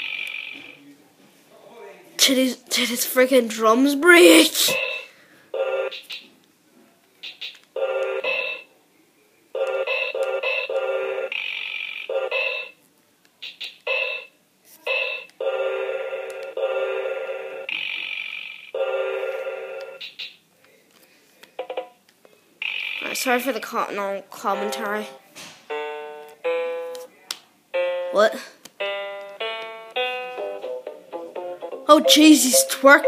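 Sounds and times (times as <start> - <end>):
tinny electronic toy tune: 31.4 - 33.0
clicky beats: 31.8 - 33.0.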